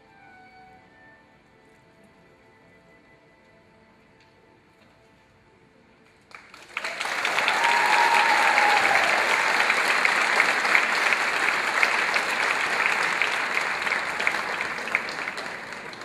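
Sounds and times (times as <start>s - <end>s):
faint music: 0.0s - 16.0s
audience applauding: 6.3s - 16.0s.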